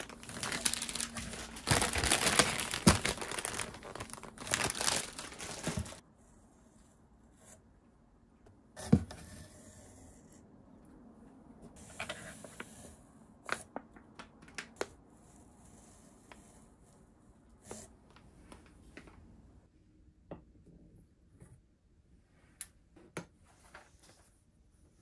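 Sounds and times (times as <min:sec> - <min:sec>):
plastic packaging crinkling: 0:00.0 - 0:06.0.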